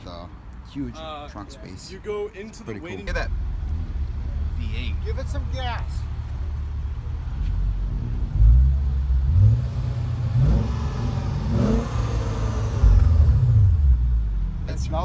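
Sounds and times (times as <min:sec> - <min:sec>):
car engine revving: 0:03.2 - 0:15.0.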